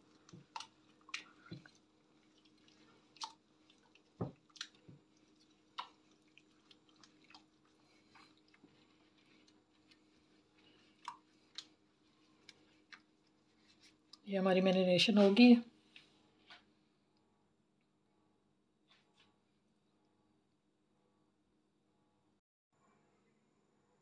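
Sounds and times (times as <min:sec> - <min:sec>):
wet squelches of hand mixing: 0:00.0 - 0:16.4.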